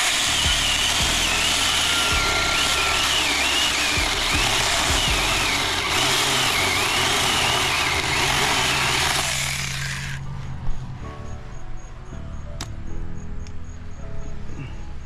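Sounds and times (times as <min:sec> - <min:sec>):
battery chainsaw cutting wood: 0:00.0 - 0:10.2.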